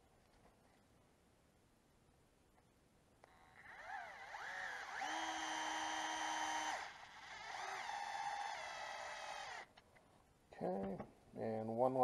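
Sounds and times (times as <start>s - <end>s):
electric screwdriver motor whining: 3.5s - 9.7s.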